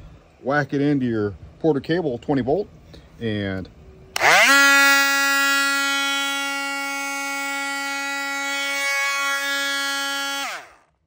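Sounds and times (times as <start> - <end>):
electric motor whining: 4.2 - 11.0.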